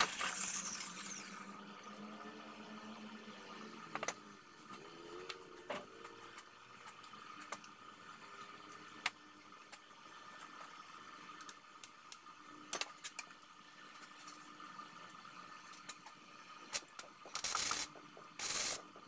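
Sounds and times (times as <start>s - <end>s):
stick welding hiss and crackle: 0.0s - 1.4s, 16.7s - 18.9s
faint steady hum: 0.0s - 19.0s.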